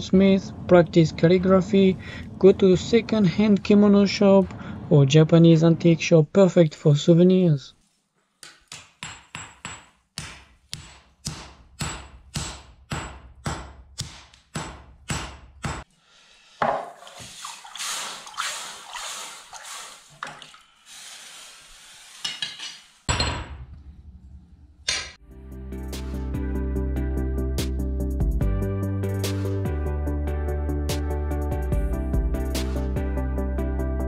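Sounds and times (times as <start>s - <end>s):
hammer striking hot steel: 8.4s - 15.9s
hot blade hissing in water: 17.1s - 20.2s, 20.8s - 23.1s.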